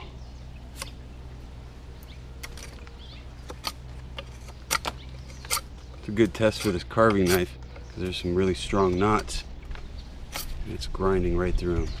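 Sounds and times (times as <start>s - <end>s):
knife shaving wood: 2.4s - 8.2s.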